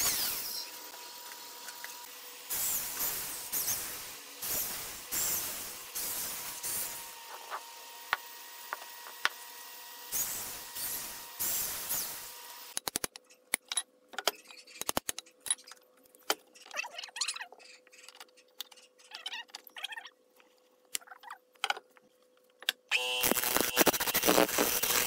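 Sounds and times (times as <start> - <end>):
electric drill boring into wood: 0.0 - 12.7, 22.9 - 25.0.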